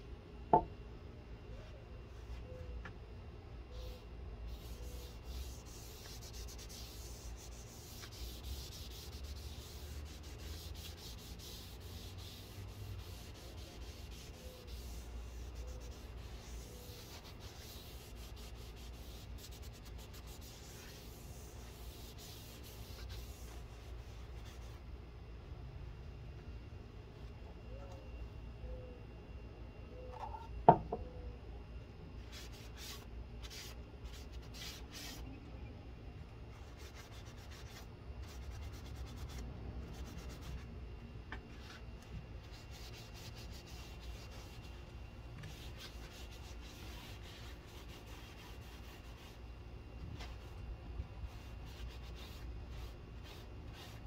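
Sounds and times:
hand rubbing wooden board: 4.5s - 24.8s.

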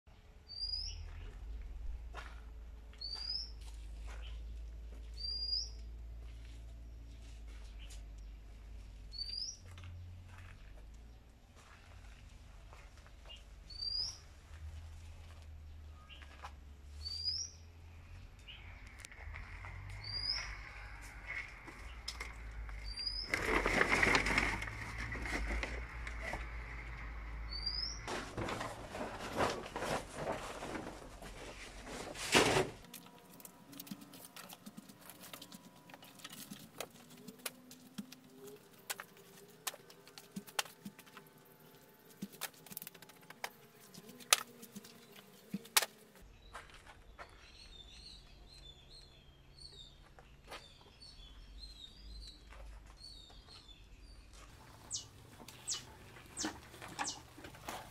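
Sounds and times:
bird chirping: 0.4s - 1.3s, 3.0s - 3.6s, 5.1s - 5.9s, 9.1s - 9.7s, 13.3s - 14.3s, 17.0s - 19.0s, 19.6s - 24.4s, 27.0s - 28.1s, 46.3s - 57.7s
loud rustling noise: 23.1s - 26.7s, 28.0s - 32.9s.

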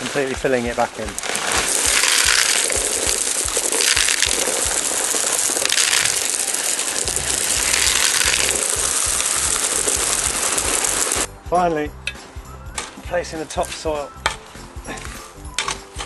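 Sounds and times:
gravel pouring and rattling: 0.0s - 11.3s.

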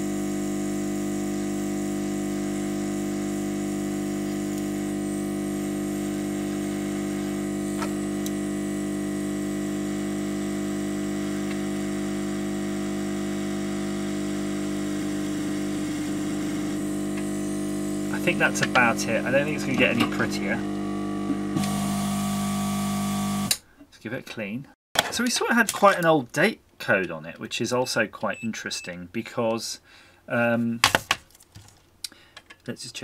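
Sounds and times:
hot-air gun blower hum: 0.0s - 23.6s.

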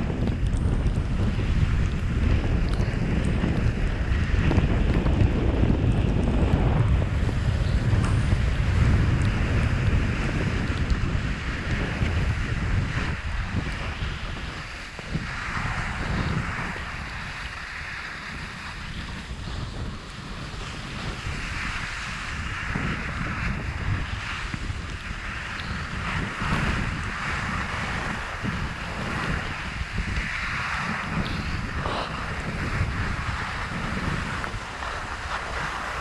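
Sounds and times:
wind buffeting microphone: 0.0s - 36.0s
ski edges scraping snow: 11.8s - 36.0s.

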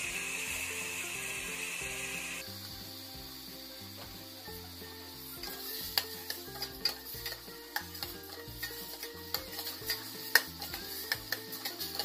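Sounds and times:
background music: 0.0s - 12.0s
chicken sizzling in a pot: 0.0s - 12.0s
utensil scraping and knocking pot: 5.4s - 12.0s.

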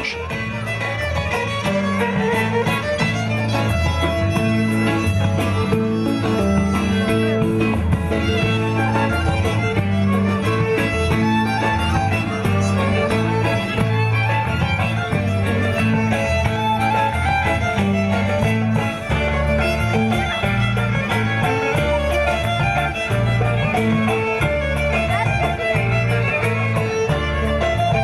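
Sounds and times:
bass line: 0.0s - 28.0s
plucked lute: 0.0s - 28.0s
violin melody: 0.0s - 28.0s.

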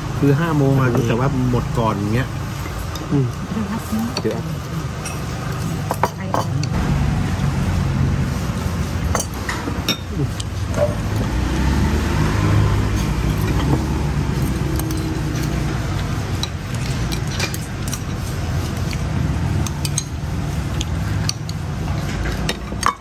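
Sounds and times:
utensils clinking on ceramic bowls: 2.5s - 6.7s, 9.1s - 11.2s, 14.4s - 23.0s.

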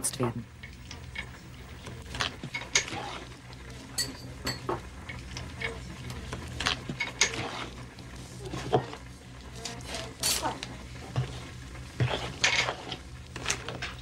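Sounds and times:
low hum: 0.0s - 14.0s
metal spoon scraping bowl: 0.8s - 3.4s, 12.0s - 13.7s.

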